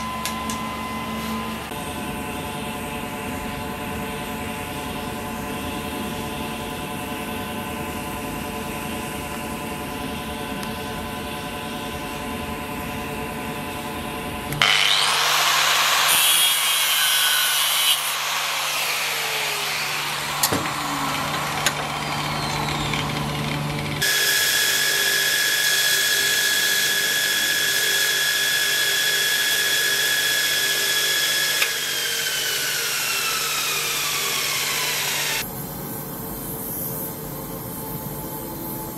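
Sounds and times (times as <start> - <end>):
machine hum: 0.0 - 36.5
angle grinder grinding: 14.5 - 35.4
belt grinder whine: 14.5 - 35.5.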